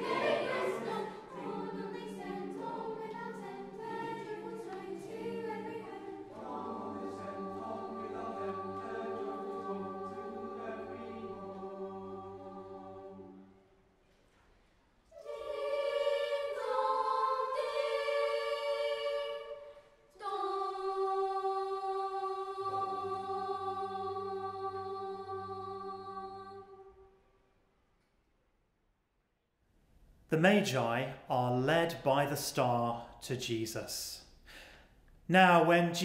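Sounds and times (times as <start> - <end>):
children's choir singing a carol: 0.0 - 14.0, 15.1 - 27.2.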